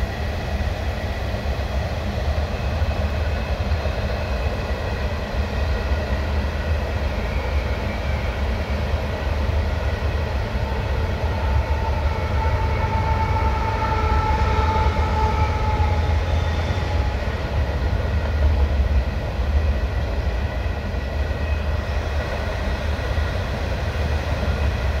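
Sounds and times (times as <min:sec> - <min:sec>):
freight train rumbling on rails: 0:00.0 - 0:25.0.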